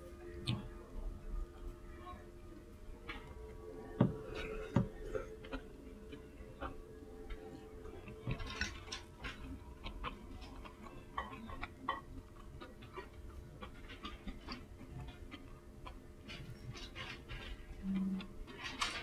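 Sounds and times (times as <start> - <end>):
faint steady hum: 0.0 - 19.0
chewing: 4.0 - 19.0.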